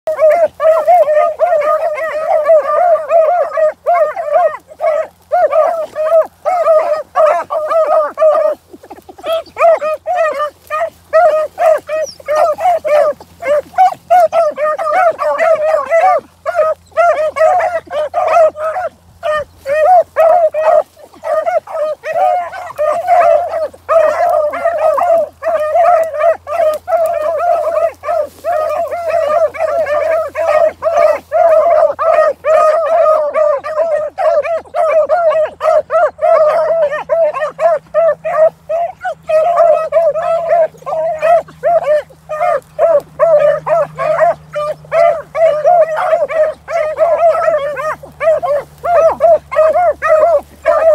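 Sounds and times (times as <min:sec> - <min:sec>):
hounds baying and yelping: 0:00.0 - 0:50.9.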